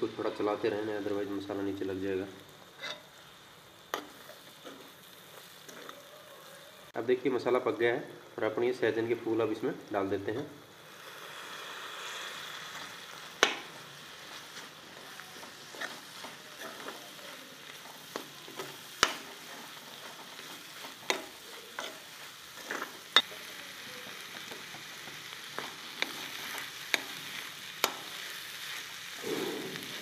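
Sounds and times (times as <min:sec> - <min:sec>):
flowers sizzling in a pan: 0:00.0 - 0:30.0
metal spoon scraping a pan: 0:02.8 - 0:03.2, 0:14.6 - 0:23.5.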